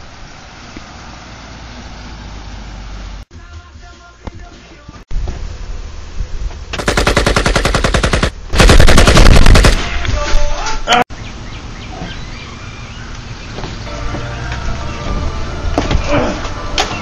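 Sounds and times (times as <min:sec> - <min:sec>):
rapid automatic gunfire: 0:06.8 - 0:10.0.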